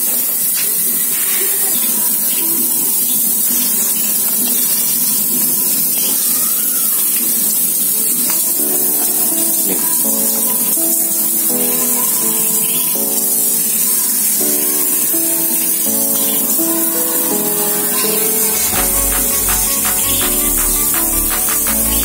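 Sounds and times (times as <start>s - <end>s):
background music: 8.6s - 22.0s
pressure sprayer hissing: 16.9s - 22.0s.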